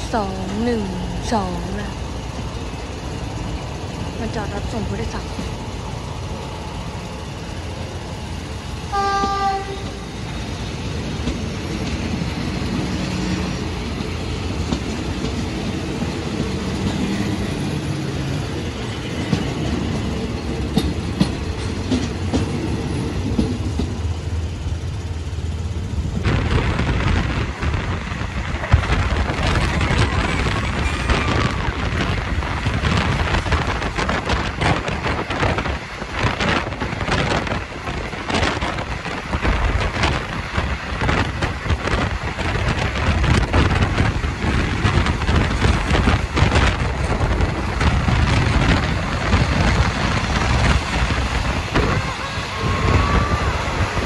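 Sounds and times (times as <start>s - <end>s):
train rumbling and rattling: 0.0s - 54.0s
train horn blast: 8.9s - 10.2s.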